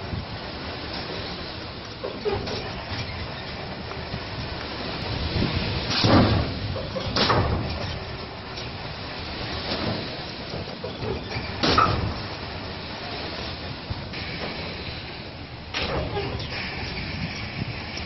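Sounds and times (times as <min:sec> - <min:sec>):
steady rumble: 0:00.0 - 0:18.0
loud clunks: 0:05.9 - 0:08.1, 0:09.7 - 0:12.3.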